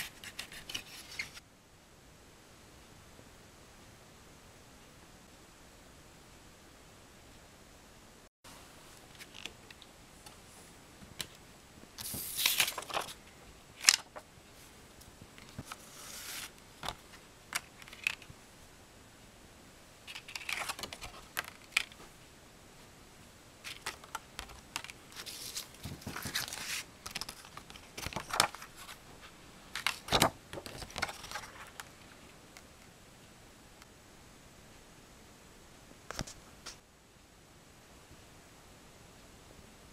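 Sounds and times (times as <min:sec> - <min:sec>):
paper booklet rustling: 0:00.0 - 0:01.4, 0:08.9 - 0:10.4, 0:12.0 - 0:14.7, 0:15.4 - 0:18.3, 0:20.1 - 0:22.0, 0:23.6 - 0:32.2.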